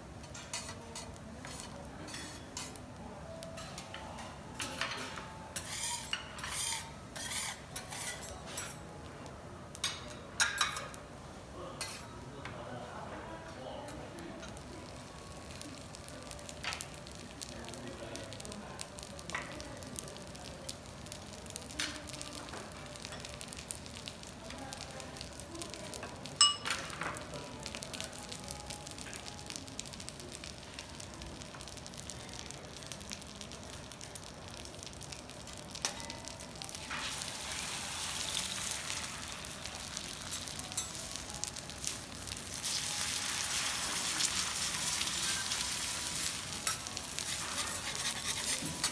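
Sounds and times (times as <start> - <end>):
metal spatulas clinking on griddle: 0.2 - 2.8, 4.6 - 8.8, 9.8 - 11.0, 11.8 - 12.1, 40.3 - 41.2, 46.6 - 48.9
egg sizzling: 27.2 - 48.9.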